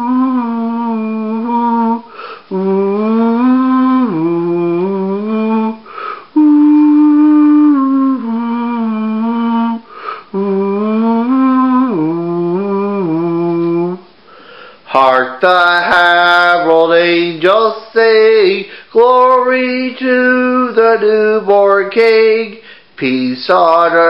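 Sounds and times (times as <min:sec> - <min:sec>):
person humming a slow melody: 0:00.0 - 0:14.0
breath drawn: 0:02.1 - 0:02.5, 0:05.9 - 0:06.3, 0:09.9 - 0:10.3.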